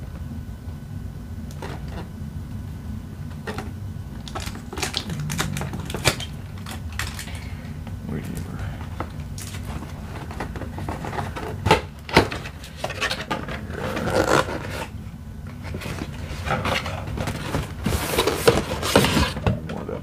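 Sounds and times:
cardboard flaps scraping: 8.9s - 19.5s.

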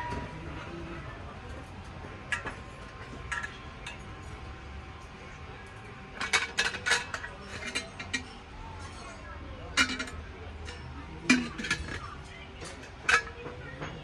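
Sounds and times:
metal kettle clinking: 2.3s - 4.1s, 6.2s - 8.4s, 9.7s - 14.0s.

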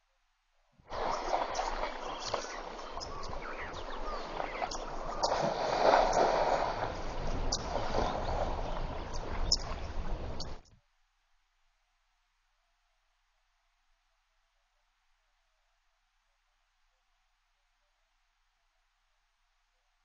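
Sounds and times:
water splashing and sloshing: 0.9s - 10.6s.

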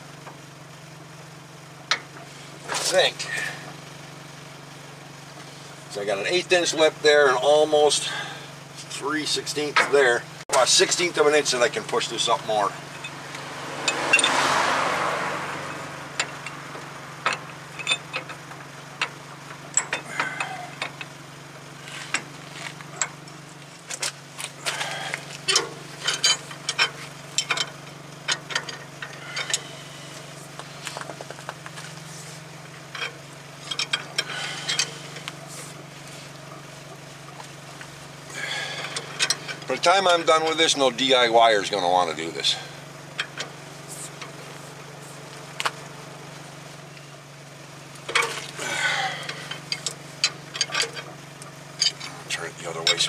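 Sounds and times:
steady low hum: 0.0s - 53.0s
metal tools clinking: 9.6s - 14.5s, 15.7s - 21.2s, 21.8s - 32.0s, 32.8s - 35.8s, 37.2s - 40.8s, 48.1s - 53.0s
ratchet wrench clicking: 32.9s - 35.4s.

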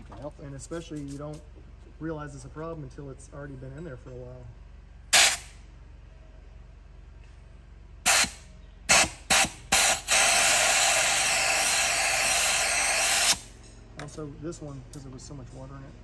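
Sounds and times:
pressurized spray hissing: 8.1s - 13.5s.

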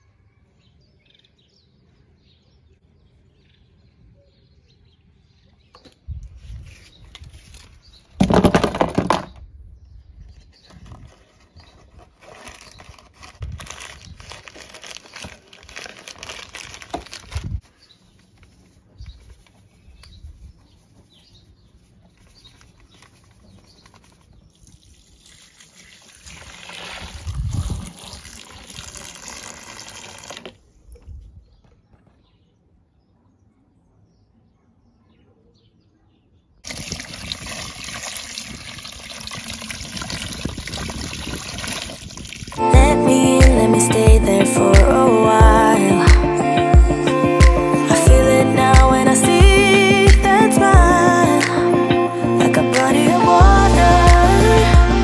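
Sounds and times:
powder shaken from cardboard box: 10.6s - 17.8s
water pouring into basin: 24.6s - 30.5s, 36.6s - 42.6s.

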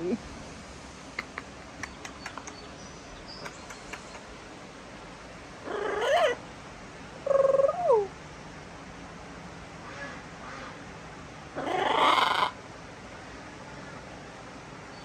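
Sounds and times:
faint clicks: 1.2s - 2.7s, 3.4s - 4.4s
macaw calls: 11.6s - 12.6s.

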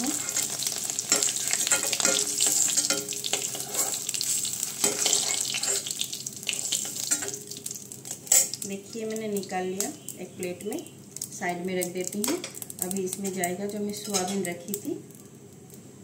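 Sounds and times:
spatula scraping a pan: 0.0s - 7.4s
hot oil sizzling: 0.0s - 15.8s.

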